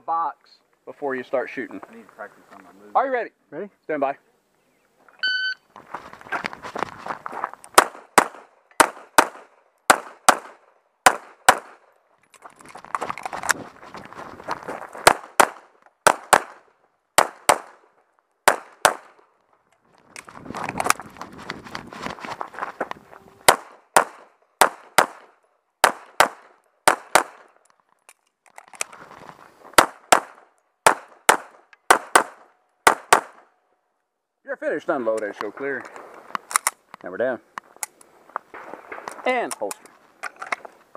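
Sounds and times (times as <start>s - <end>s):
footsteps on gravel: 5.8s - 7.8s, 12.3s - 15.6s, 19.9s - 23.6s, 28.6s - 29.9s
pistol shots: 7.8s - 11.8s, 15.0s - 17.8s, 18.4s - 19.2s, 23.4s - 27.5s, 29.8s - 33.5s.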